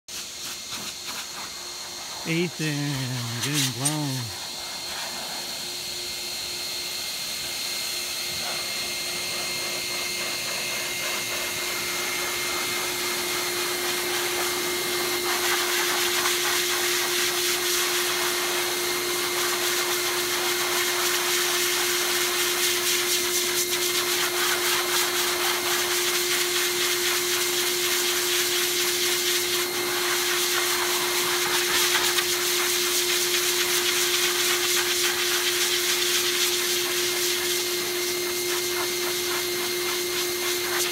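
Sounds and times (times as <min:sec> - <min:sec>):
force dryer motor whine: 0:01.5 - 0:40.9.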